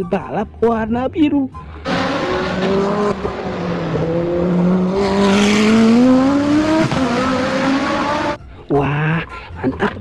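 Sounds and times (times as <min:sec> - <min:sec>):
race car engine accelerating: 0:01.8 - 0:08.4.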